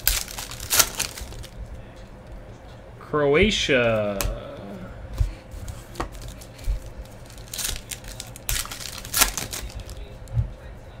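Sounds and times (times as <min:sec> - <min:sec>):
foil crinkling and tearing: 0:00.0 - 0:01.6, 0:06.1 - 0:10.1.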